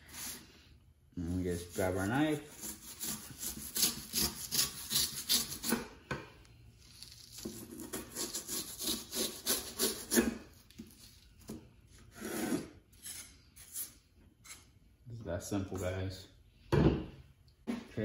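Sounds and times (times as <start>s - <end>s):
knife sawing through insulation: 1.3s - 5.8s, 7.0s - 10.4s, 12.1s - 14.6s.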